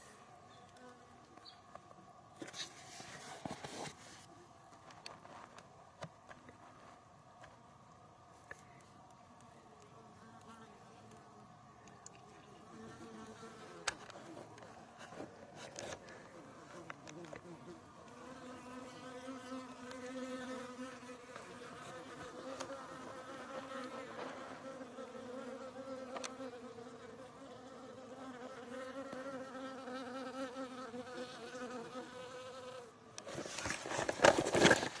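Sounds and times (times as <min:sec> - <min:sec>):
camera handling and scraping: 0:13.8 - 0:16.1, 0:33.2 - 0:35.0
flying insect buzzing: 0:16.8 - 0:32.9.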